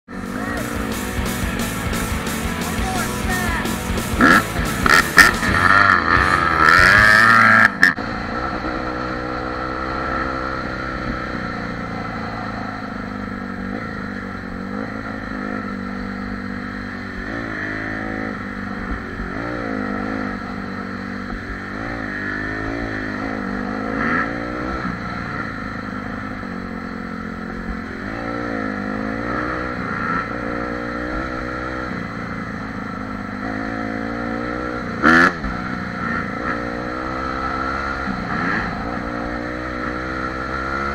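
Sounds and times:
dirt bike engine revving: 0:00.1 - 0:40.9.

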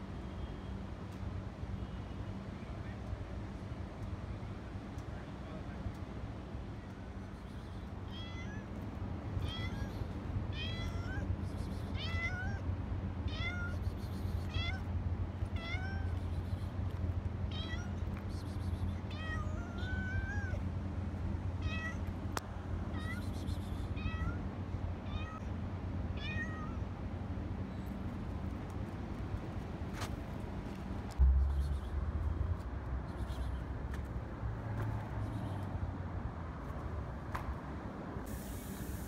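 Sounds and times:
cat meowing: 0:08.1 - 0:08.7, 0:09.4 - 0:11.3, 0:11.9 - 0:12.6, 0:13.3 - 0:14.9, 0:15.6 - 0:16.2, 0:17.5 - 0:18.0, 0:19.0 - 0:20.6, 0:21.6 - 0:22.1, 0:23.9 - 0:24.4, 0:25.0 - 0:25.5, 0:26.2 - 0:26.8.

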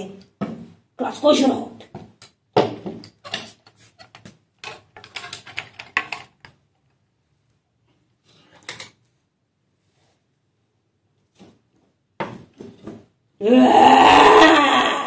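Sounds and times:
wooden marionette clattering: 0:01.9 - 0:06.7.

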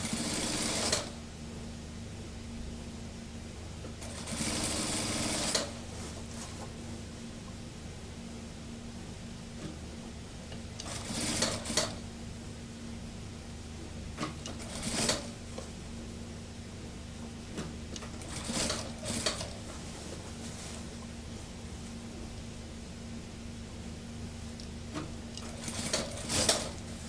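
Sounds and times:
industrial sewing machine stitching: 0:00.0 - 0:01.2, 0:04.0 - 0:05.8, 0:10.8 - 0:12.0, 0:14.5 - 0:15.4, 0:18.1 - 0:19.6, 0:25.4 - 0:26.8
steady low hum: 0:00.0 - 0:27.0.

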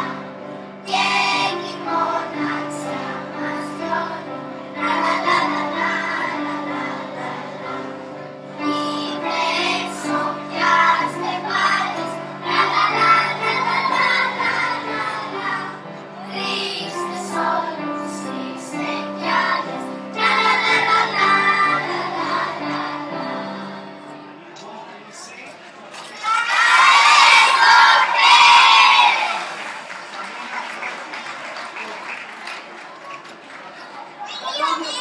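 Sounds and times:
children singing together: 0:00.0 - 0:24.2, 0:26.3 - 0:29.5.

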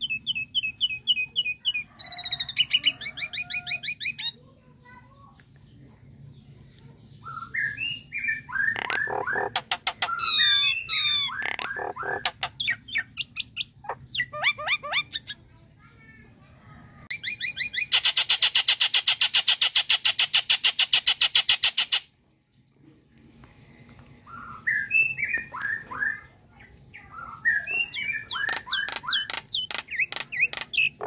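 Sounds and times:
myna whistles and chatter: 0:07.2 - 0:12.2, 0:24.2 - 0:31.0.

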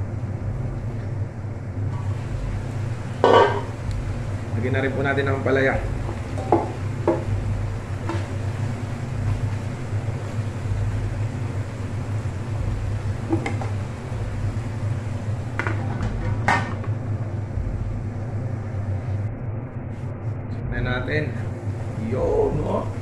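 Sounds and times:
steady low hum: 0:00.0 - 0:23.0
utensil knocking on pan: 0:03.2 - 0:03.7, 0:06.4 - 0:07.3
kitchenware clinking: 0:03.2 - 0:03.8.

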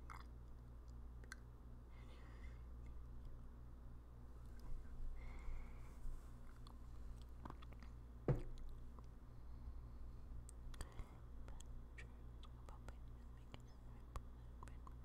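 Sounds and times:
wet mouth clicks and smacks: 0:00.0 - 0:01.5
faint low hum: 0:00.0 - 0:15.0
knock: 0:08.3 - 0:08.5.

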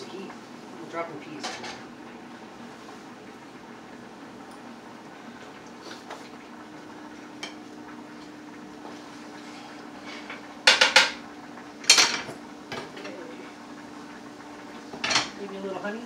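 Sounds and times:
utensil clanking on a skillet: 0:07.4 - 0:07.6, 0:10.0 - 0:11.2, 0:11.8 - 0:13.2, 0:14.9 - 0:15.4.

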